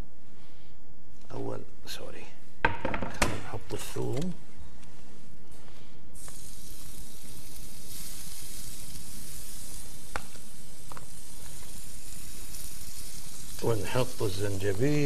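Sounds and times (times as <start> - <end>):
garlic sizzling on a hot griddle: 6.2 - 15.0.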